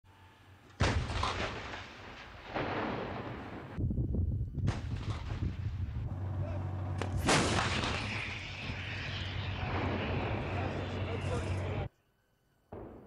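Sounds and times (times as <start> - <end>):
tank gun blast with echo: 0.8 - 3.8, 7.0 - 11.2
steady low rumble: 3.7 - 11.9
sharp gun reports: 6.3 - 11.9.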